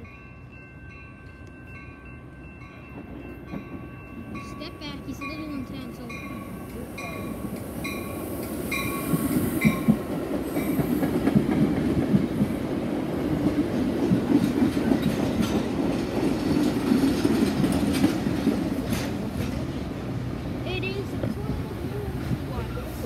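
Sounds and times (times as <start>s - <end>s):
train wheels rumbling on rail: 1.2s - 23.0s
wheels clacking over rail joints: 5.2s - 23.0s.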